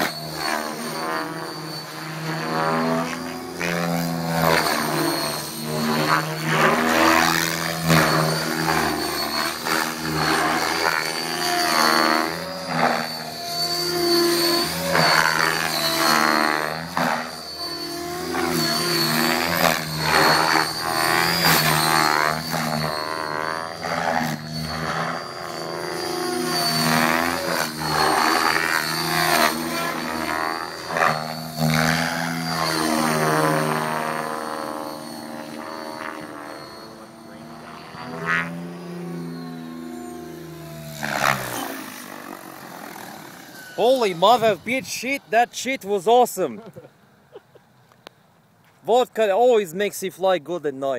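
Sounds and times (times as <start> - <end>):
model helicopter rotor and motor: 0.0 - 46.9
steady high whine: 0.0 - 50.2.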